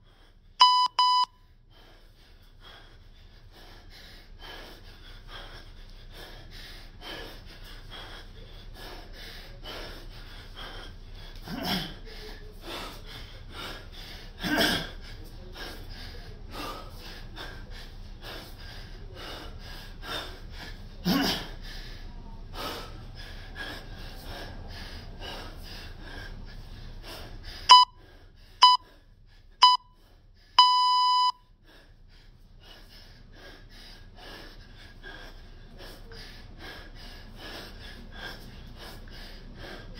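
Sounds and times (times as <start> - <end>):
man breathing hard: 0.0 - 39.9
long electronic beep: 0.6 - 1.3, 27.7 - 28.0, 28.6 - 28.8, 29.6 - 29.8, 30.6 - 31.4
short electronic beeps: 0.6 - 1.3, 27.7 - 28.0, 28.6 - 28.8, 29.6 - 29.9, 30.6 - 31.4.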